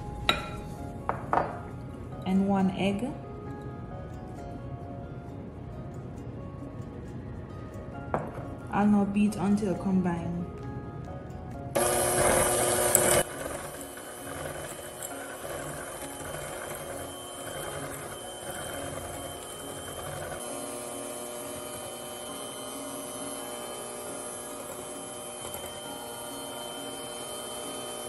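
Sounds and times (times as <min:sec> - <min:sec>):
electric hand mixer running: 0:11.8 - 0:28.0.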